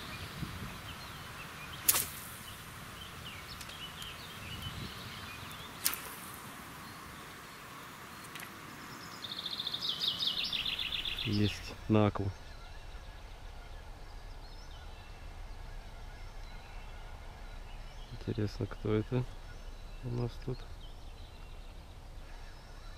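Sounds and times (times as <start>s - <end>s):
faint birdsong: 0.0s - 22.9s
rod swishing through air: 1.8s - 2.5s.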